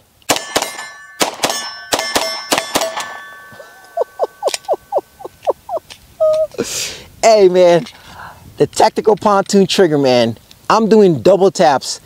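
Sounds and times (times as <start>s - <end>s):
pistol shots: 0.3s - 3.2s
bullets ringing off steel targets: 0.3s - 4.0s.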